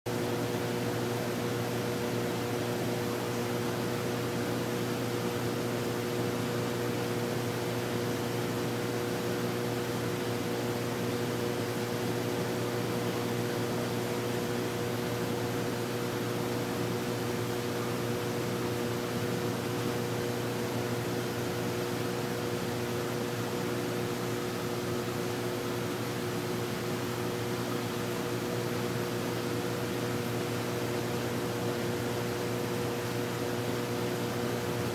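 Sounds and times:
steady machine hum with hiss: 0:00.1 - 0:34.9.

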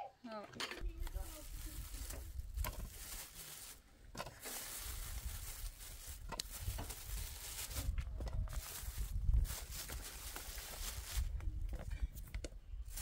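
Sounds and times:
plastic bag crinkling: 0:00.8 - 0:03.8, 0:04.4 - 0:11.3.

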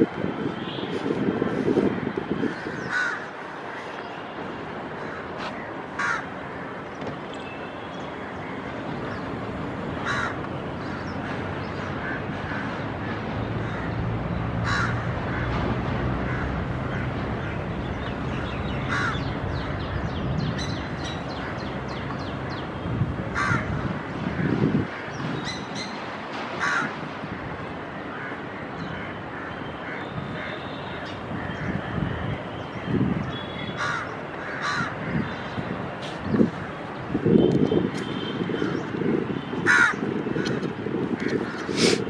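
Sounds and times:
crows cawing: 0:01.9 - 0:03.9, 0:05.0 - 0:06.7, 0:10.0 - 0:14.0, 0:14.6 - 0:15.5, 0:16.2 - 0:17.6, 0:18.8 - 0:19.3, 0:23.3 - 0:25.2, 0:26.6 - 0:27.0, 0:33.7 - 0:35.3, 0:39.6 - 0:40.6.

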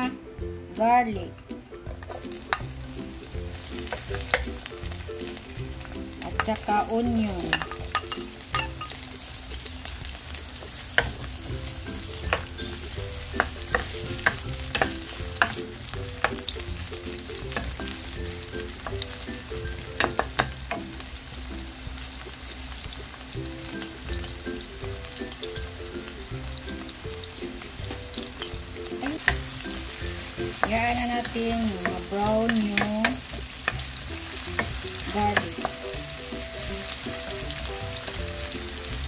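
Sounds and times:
onion and garlic sizzling in oil: 0:00.0 - 0:39.0
spatula tapping against pan: 0:03.9 - 0:04.6, 0:12.2 - 0:16.6, 0:19.7 - 0:20.9, 0:30.4 - 0:33.9, 0:34.5 - 0:35.9.

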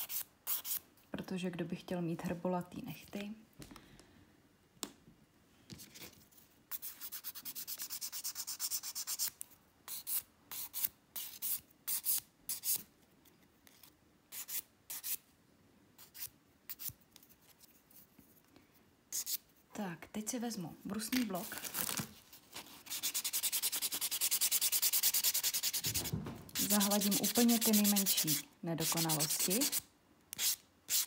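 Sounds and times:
nail file rasping: 0:26.6 - 0:29.8, 0:30.4 - 0:31.0.

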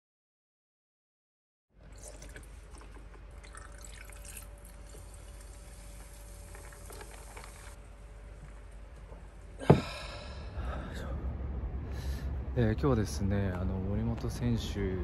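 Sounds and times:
low hum: 0:01.8 - 0:15.0
fizzy drink crackling over ice: 0:03.4 - 0:07.8.

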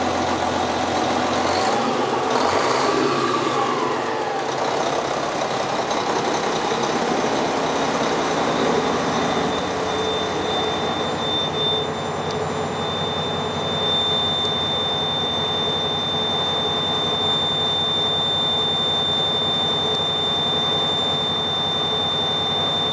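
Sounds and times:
diesel truck engine idling: 0:00.0 - 0:22.9
high-pitched warning buzzer: 0:08.1 - 0:22.9.

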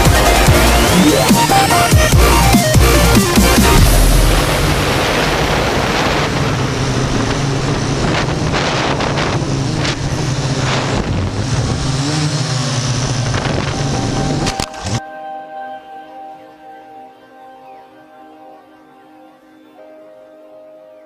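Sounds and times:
wind noise on microphone: 0:00.0 - 0:15.0
drone propellers whirring: 0:00.0 - 0:15.2.

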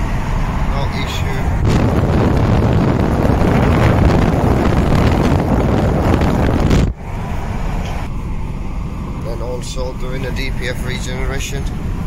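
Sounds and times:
wind buffeting microphone: 0:00.0 - 0:09.2
road noise: 0:00.0 - 0:12.0.

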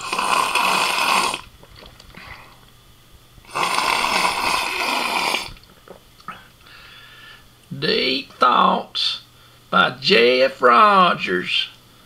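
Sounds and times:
person snoring: 0:00.0 - 0:01.5, 0:03.5 - 0:05.6.

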